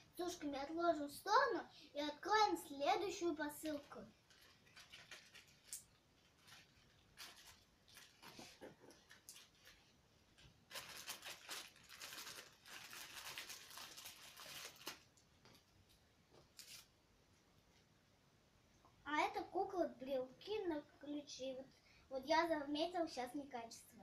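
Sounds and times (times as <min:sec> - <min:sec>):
plastic packaging crinkling: 0:03.1 - 0:15.7, 0:16.5 - 0:16.9.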